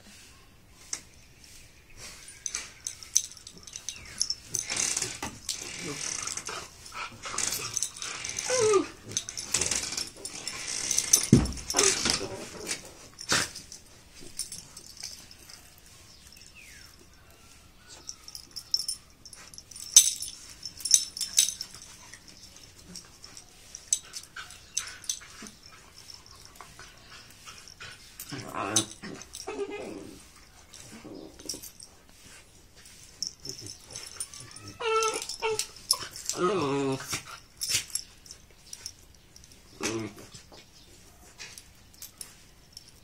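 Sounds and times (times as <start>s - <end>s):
dog crying: 7.4s - 9.0s, 33.5s - 37.0s.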